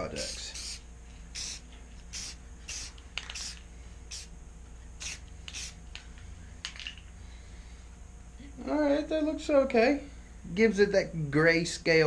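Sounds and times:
aerosol can spraying: 0.0 - 4.4, 5.0 - 6.1.

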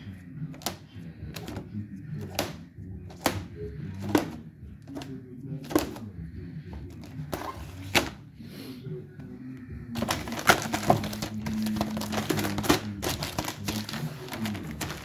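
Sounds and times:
scissors snipping plastic film: 10.0 - 15.0.

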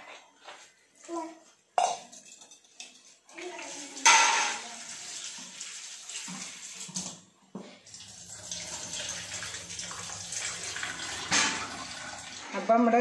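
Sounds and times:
tap running into metal sink: 11.0 - 12.0.

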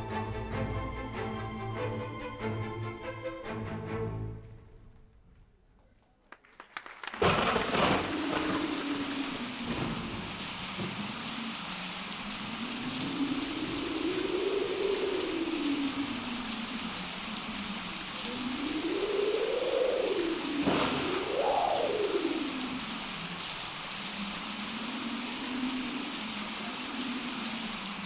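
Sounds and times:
steady rain: 0.0 - 2.6, 6.4 - 28.0
crackles: 4.4 - 28.0
thunderclap: 7.0 - 16.5, 17.8 - 23.3
low howling wind: 7.2 - 28.0.

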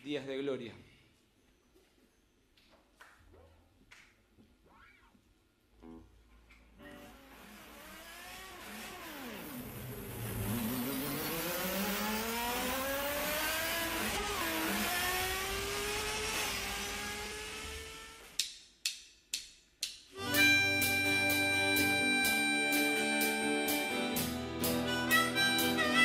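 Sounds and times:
race car engine revving: 6.8 - 18.4.

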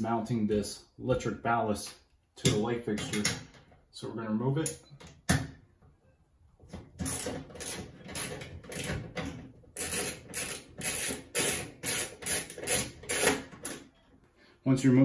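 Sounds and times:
ratchet wrench clicking: 7.0 - 8.9, 9.8 - 13.8.

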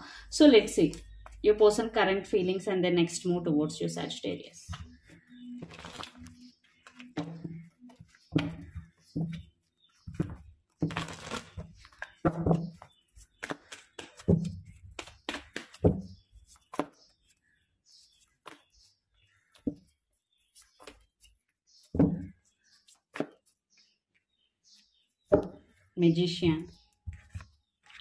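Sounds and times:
cards being shuffled: 5.6 - 7.2, 10.2 - 12.2.

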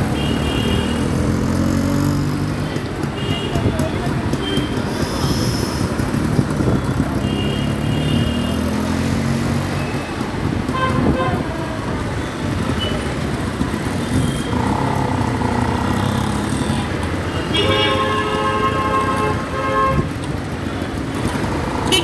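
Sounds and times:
motorcycle engine and road rumble: 0.0 - 22.0
vehicle horn toots: 7.2 - 8.7, 17.3 - 20.1.

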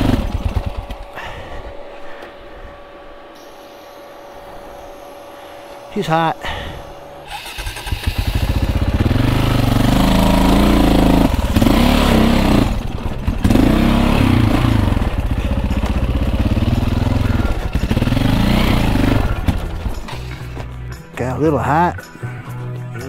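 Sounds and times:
dirt bike engine revving: 0.0 - 1.4, 7.3 - 20.6.

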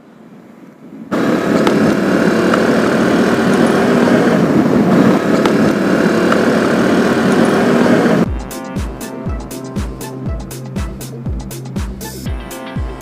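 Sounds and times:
wind rushing on microphone: 0.0 - 8.3
motorcycle engine running: 1.1 - 13.0.

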